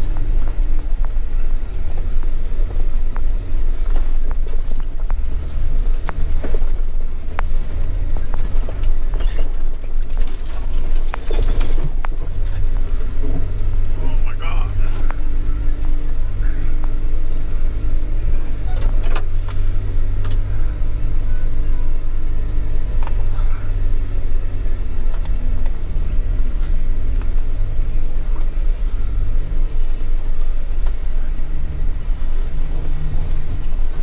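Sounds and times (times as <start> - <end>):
vehicle engine running at low revs: 0.0 - 34.0.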